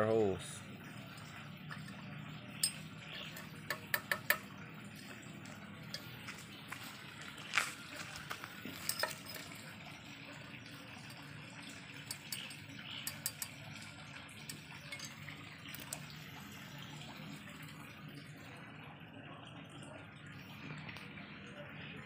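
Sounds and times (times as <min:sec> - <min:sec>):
rod clinking on steel stove bowl: 0:01.1 - 0:04.5, 0:05.8 - 0:06.4, 0:08.6 - 0:10.1, 0:11.0 - 0:16.3.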